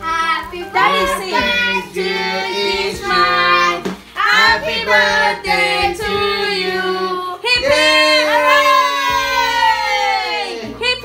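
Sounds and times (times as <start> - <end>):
child singing: 0.0 - 7.9
music: 0.0 - 11.0.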